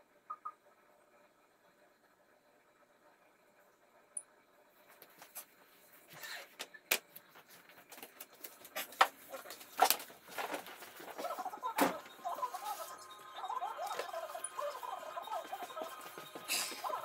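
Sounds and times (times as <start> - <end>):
faint television sound: 9.1 - 17.0.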